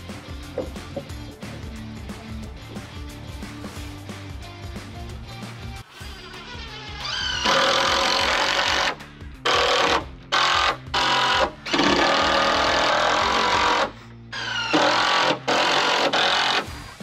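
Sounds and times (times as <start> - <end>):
impact driver driving screws: 7.2 - 16.7.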